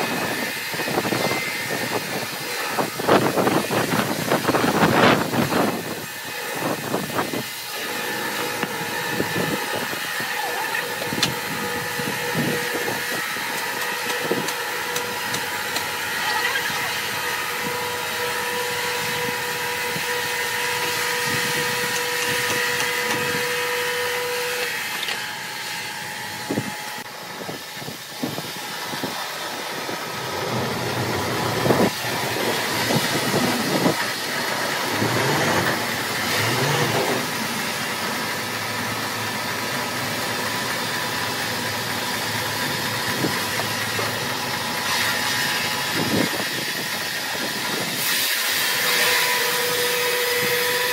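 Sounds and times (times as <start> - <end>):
sawmill mechanical drone: 0.0 - 50.9
steady whine: 0.0 - 50.9.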